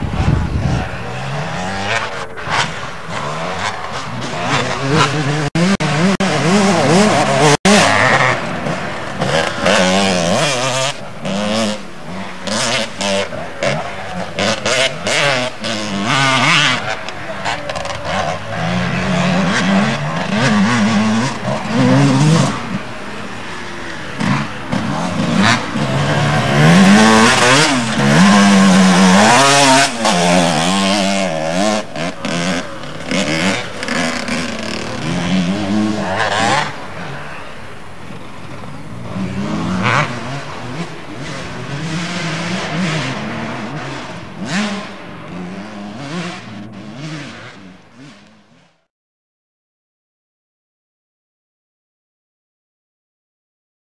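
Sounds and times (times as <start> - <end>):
motorcycle engines revving: 0.0 - 48.9.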